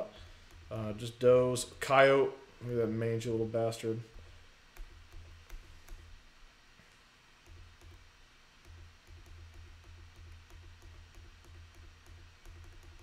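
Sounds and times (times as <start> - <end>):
faint low hum: 0.0 - 13.0
light ticks and clicks: 7.4 - 13.0.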